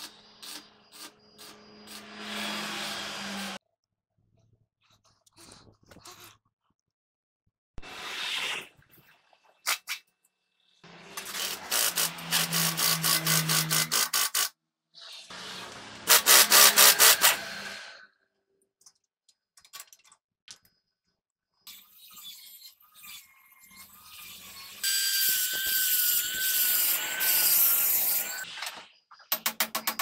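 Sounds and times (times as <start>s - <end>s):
pneumatic impact wrench rattling: 11.0s - 14.5s, 16.1s - 17.5s.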